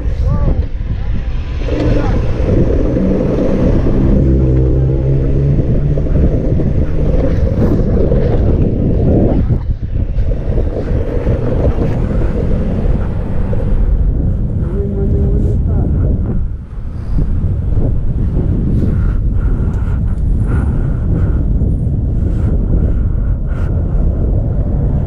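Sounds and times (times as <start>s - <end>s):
wind buffeting microphone: 0.0s - 25.0s
motor hum: 1.5s - 16.0s.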